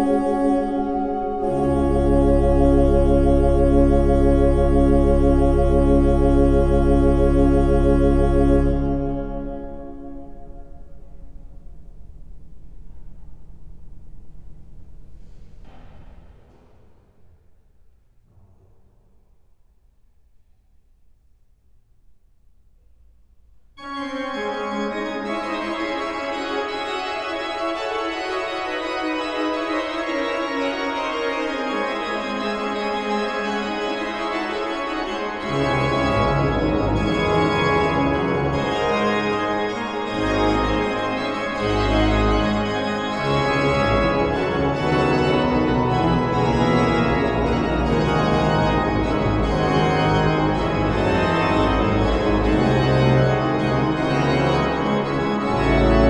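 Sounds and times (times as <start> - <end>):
pipe organ playing: 0.0 - 12.6, 23.8 - 56.0
deep organ pedal bass notes: 0.0 - 15.8, 23.8 - 56.0.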